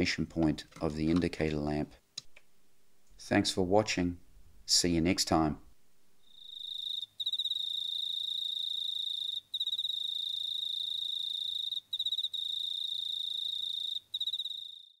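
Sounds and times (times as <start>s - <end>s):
cricket trilling: 6.2s - 15.0s.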